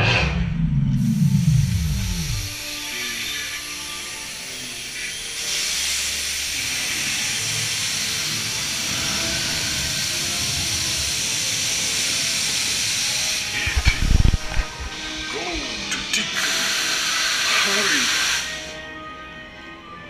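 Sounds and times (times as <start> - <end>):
loud low thumps: 0.0 - 2.6
low rumble: 0.0 - 2.6, 13.6 - 15.2
special effect hissing: 0.0 - 18.8.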